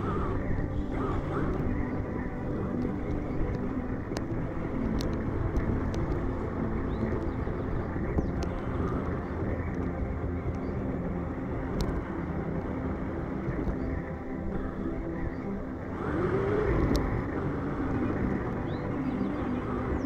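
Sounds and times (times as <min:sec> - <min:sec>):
sharp clicks: 0:02.7 - 0:10.6.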